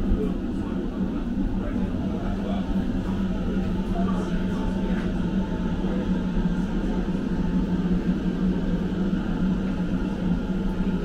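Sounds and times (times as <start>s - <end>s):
electric train car humming: 0.0s - 11.0s.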